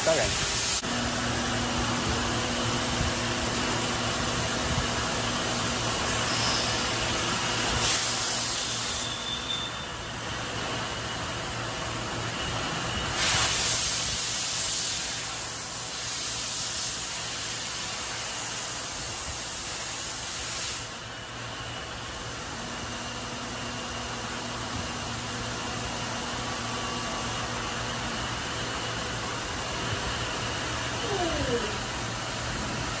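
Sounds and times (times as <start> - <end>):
coolant spray hiss: 6.0 - 9.2, 13.2 - 21.1
machine hum: 21.3 - 33.0.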